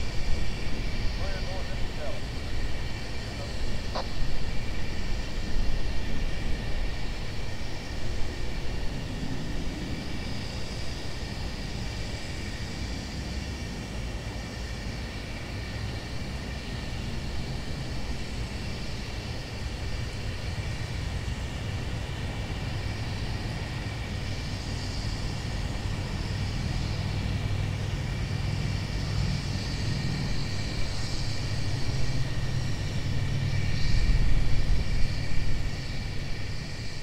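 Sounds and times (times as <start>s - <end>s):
distant steam locomotive rumble: 0.0s - 37.0s.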